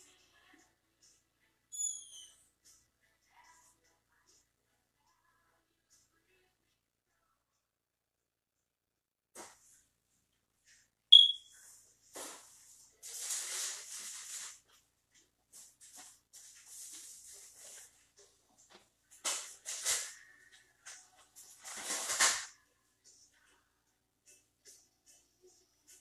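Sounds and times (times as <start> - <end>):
sharp high ringing ping: 11.2 - 11.5
household noises: 11.9 - 22.6.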